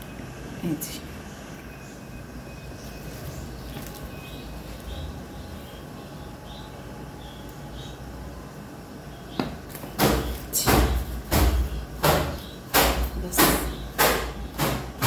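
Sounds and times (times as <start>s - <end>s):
plastic bag crinkling and rustling: 2.9s - 4.9s.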